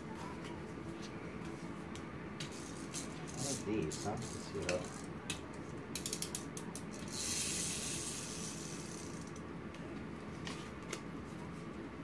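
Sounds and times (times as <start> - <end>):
toy motor whirring: 2.4 - 5.1, 5.9 - 9.4
toy spring motor ratchet clicks: 2.6 - 9.4.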